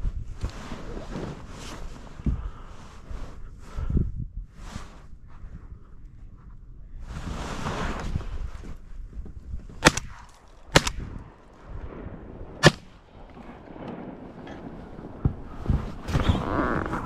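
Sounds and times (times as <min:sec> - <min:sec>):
rustle: 0:00.0 - 0:03.8, 0:04.5 - 0:12.0
shotgun shots: 0:09.8 - 0:11.4, 0:12.5 - 0:13.0.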